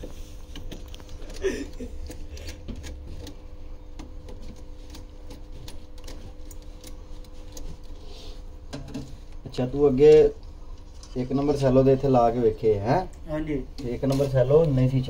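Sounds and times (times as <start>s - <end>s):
hands and tools clicking on wiring: 0.0s - 8.0s
low machinery hum: 0.0s - 15.0s.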